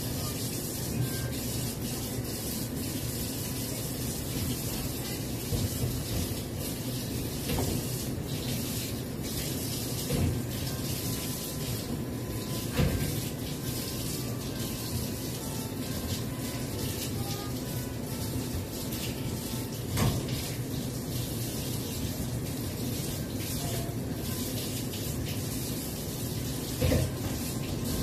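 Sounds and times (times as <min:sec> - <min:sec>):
tap water running into sink: 0:00.0 - 0:28.0.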